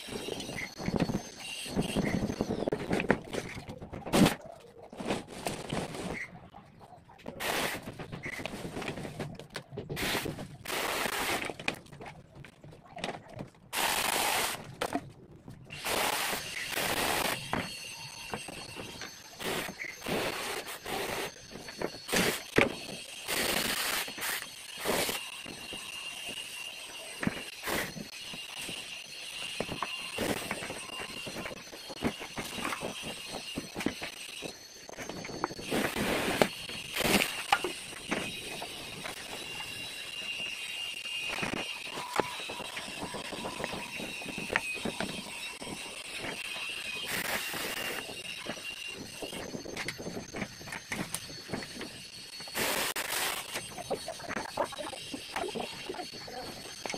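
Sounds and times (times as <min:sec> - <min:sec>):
mini chainsaw cutting branches: 0:10.0 - 0:11.6, 0:13.7 - 0:14.7, 0:15.7 - 0:50.0, 0:52.4 - 0:54.1.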